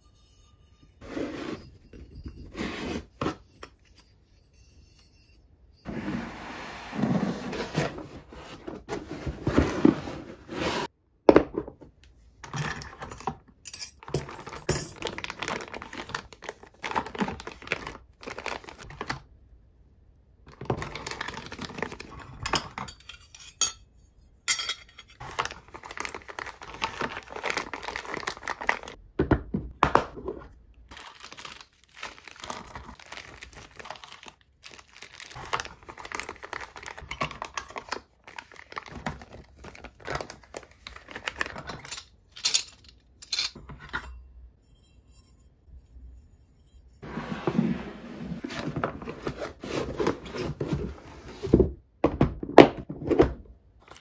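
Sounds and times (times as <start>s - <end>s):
plastic bags crinkling: 14.1s - 19.2s, 20.6s - 22.4s, 25.2s - 29.0s, 30.9s - 42.0s
small metal parts clinking: 41.8s - 43.6s.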